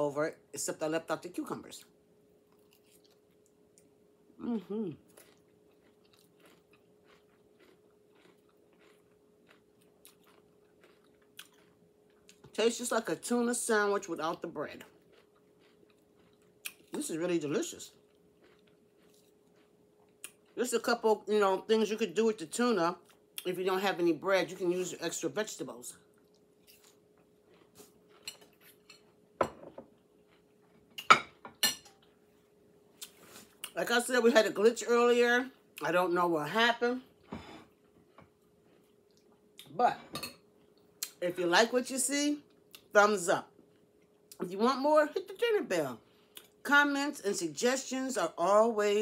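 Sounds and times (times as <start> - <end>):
faint steady hum: 0.0 - 49.0
chewing crunches: 2.5 - 3.9, 5.0 - 12.6, 14.3 - 17.1, 17.8 - 20.6, 26.1 - 29.2, 29.9 - 31.1, 37.7 - 39.7.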